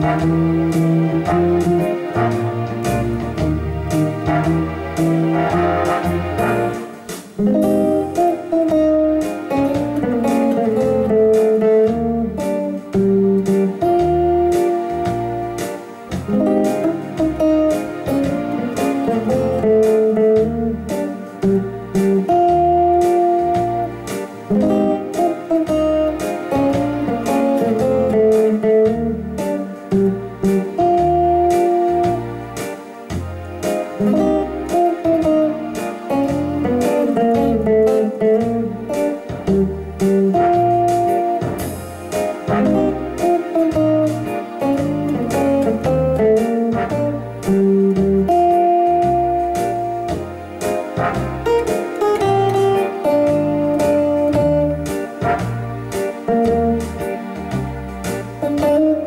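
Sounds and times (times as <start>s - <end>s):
backing bass line: 0.0s - 59.0s
electric guitar single-note lines: 0.0s - 59.0s.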